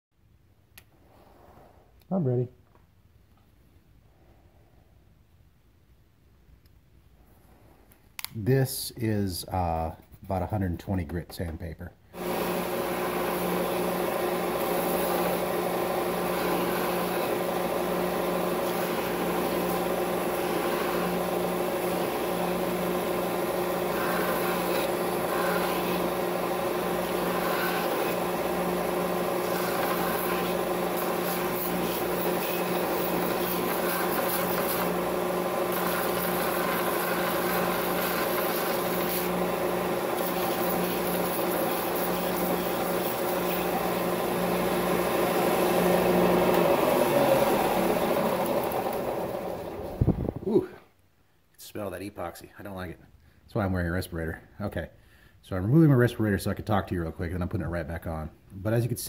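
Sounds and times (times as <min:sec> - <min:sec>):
sander motor hum: 0:12.2 - 0:50.5
rasping grind on sanding belt: 0:29.3 - 0:35.0.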